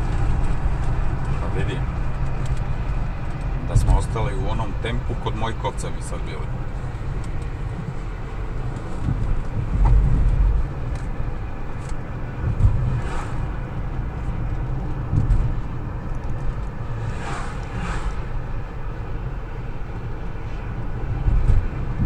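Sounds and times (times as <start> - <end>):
car cabin road rumble: 0.0 - 22.0
brief high swishes: 17.0 - 18.4.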